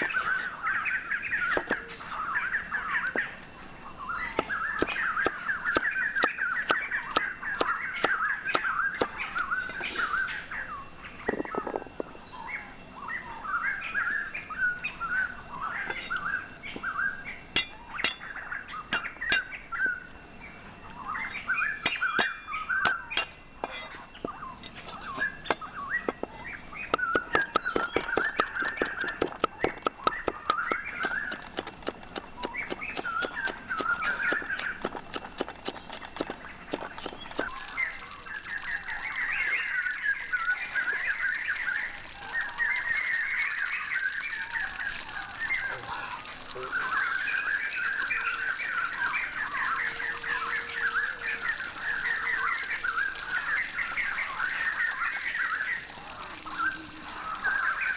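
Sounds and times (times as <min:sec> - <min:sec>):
birds chirping: 0:00.0 - 0:57.9
cleaver chopping on wooden block: 0:26.9 - 0:37.5.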